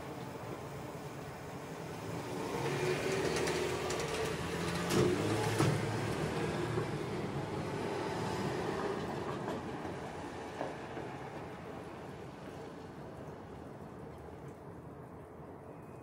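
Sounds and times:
passing vehicle rumbling: 1.9 - 9.7.

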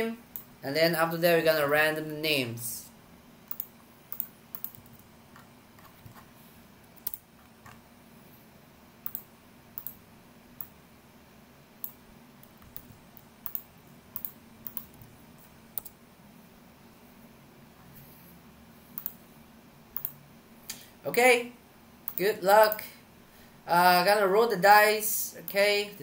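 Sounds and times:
faint low hum: 0.0 - 26.0
keyboard and mouse clicks: 3.5 - 6.3, 6.9 - 7.8, 9.0 - 10.0, 11.8 - 15.2, 15.8 - 16.0, 19.0 - 19.2, 20.0 - 20.8, 22.1 - 22.8.

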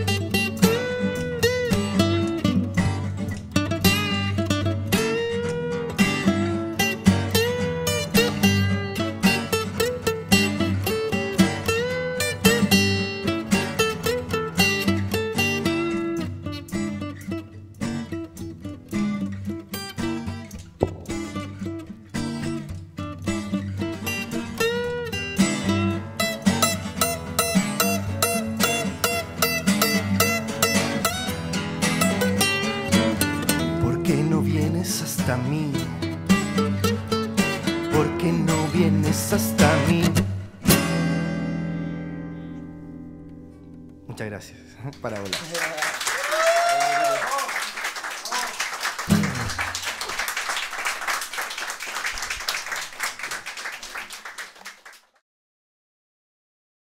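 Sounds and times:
acoustic guitars playing: 0.0 - 45.4, 48.6 - 54.8
audience applauding: 44.8 - 55.2.

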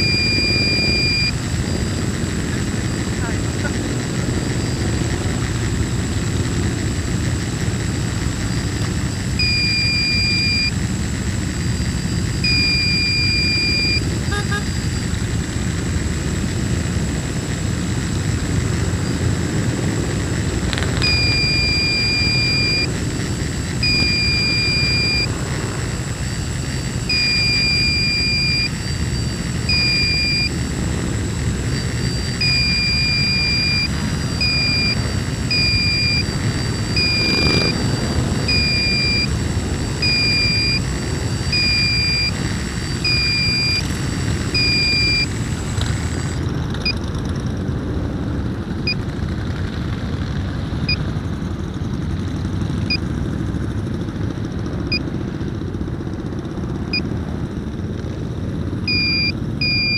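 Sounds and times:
high electronic beeps: 0.0 - 5.5, 8.3 - 15.2, 20.2 - 47.0, 58.9 - 59.9
motorcycles riding past: 18.4 - 43.2.

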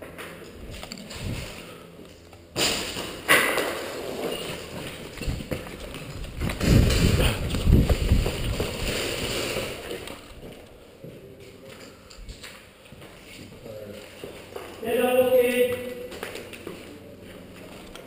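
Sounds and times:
footsteps on gritty concrete: 3.0 - 14.9.

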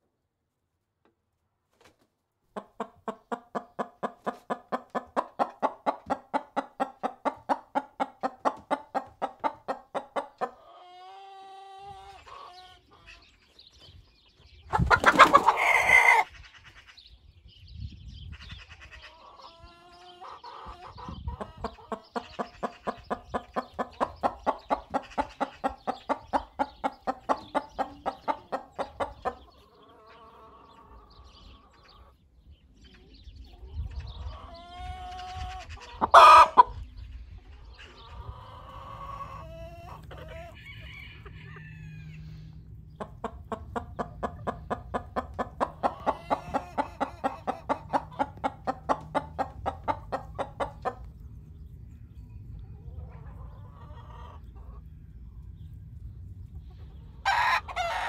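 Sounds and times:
hen clucking: 2.5 - 13.6, 14.6 - 17.0, 18.3 - 32.2, 33.5 - 51.4, 52.7 - 55.5, 56.5 - 58.0.

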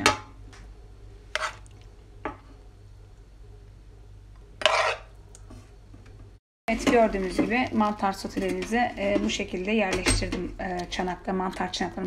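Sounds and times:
spoon scraping: 1.3 - 1.7, 4.6 - 5.1.

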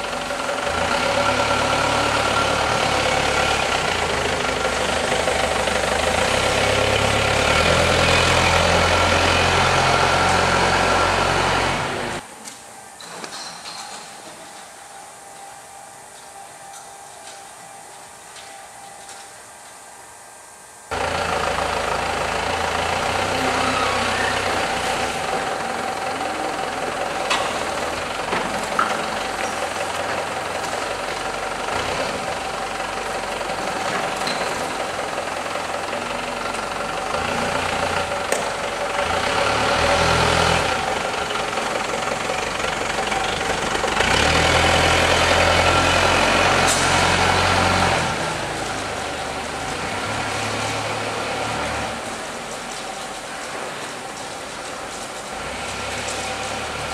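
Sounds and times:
forklift engine droning: 0.0 - 12.3, 20.9 - 56.9
crate handling line running: 20.9 - 56.9.

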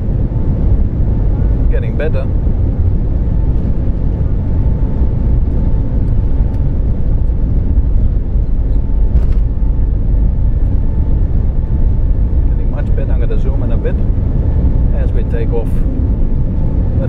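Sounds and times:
jet engine rumble in cabin: 0.0 - 17.0
thin steady whine: 0.0 - 17.0.

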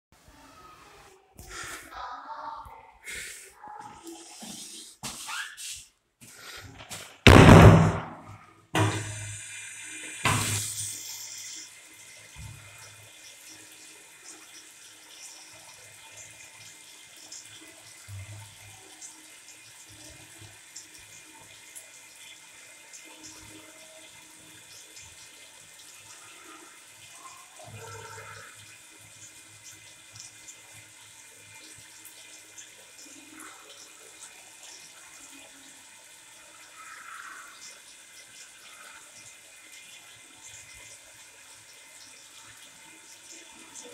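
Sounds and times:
tap water splashing into sink: 6.8 - 9.3, 10.2 - 11.0, 12.2 - 13.1.

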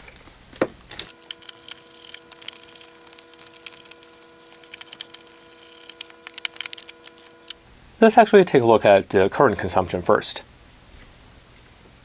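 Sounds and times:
plastic and rubber clicks and creaks: 0.9 - 7.6.

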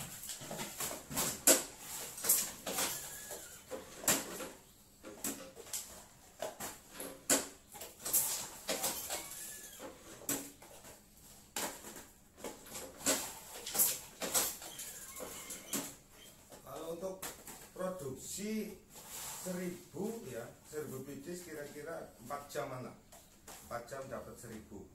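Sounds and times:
hand sealing machine: 0.0 - 5.9, 7.0 - 10.5, 12.6 - 16.0.

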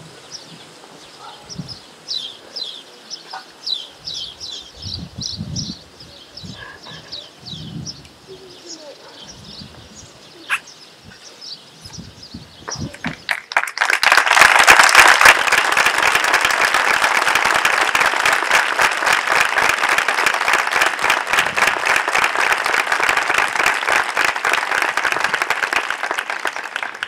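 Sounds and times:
crowd applauding: 12.7 - 27.0.

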